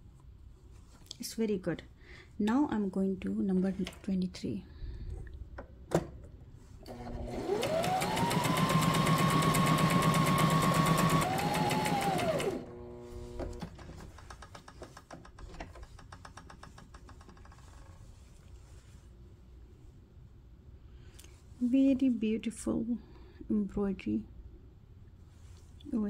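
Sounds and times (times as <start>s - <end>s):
sewing machine motor whine: 6.9s - 13.7s
sewing needle clatter: 13.6s - 18.3s.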